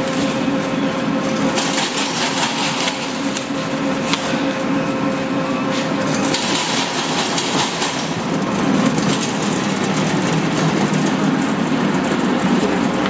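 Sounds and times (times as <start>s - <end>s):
peeling machine rattling: 1.3s - 3.4s, 6.1s - 13.0s.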